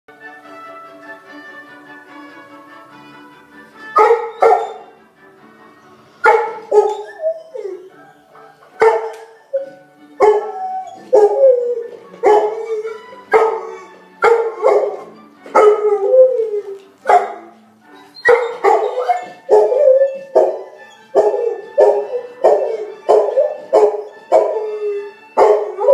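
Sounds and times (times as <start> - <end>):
orchestral music: 0.1 - 25.9
dog howling barks: 4.0 - 4.9, 6.2 - 17.5, 18.2 - 25.9.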